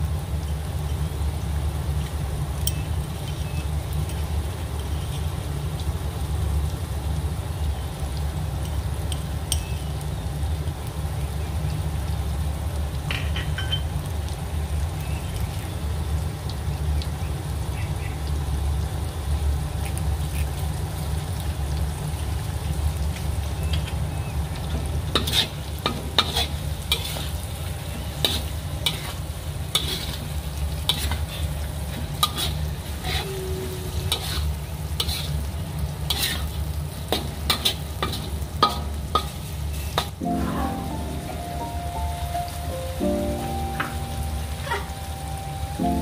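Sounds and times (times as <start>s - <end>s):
utensil clinking on cookware: 9.5s - 9.8s, 13.1s - 13.9s.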